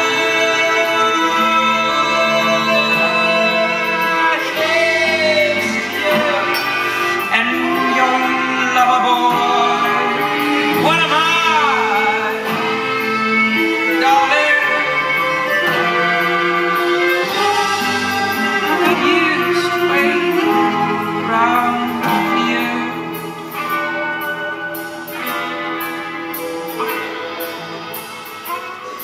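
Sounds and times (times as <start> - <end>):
person singing: 0.0 - 29.0
soft instrumental accompaniment: 0.0 - 29.0.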